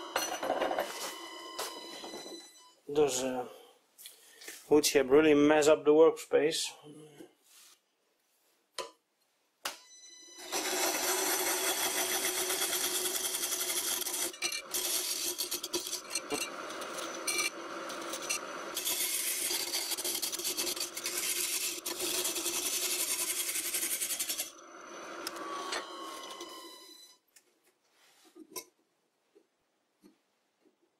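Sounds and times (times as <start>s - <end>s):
tool scraping on spinning wood: 10.4s - 24.6s
wood lathe humming: 10.4s - 26.9s.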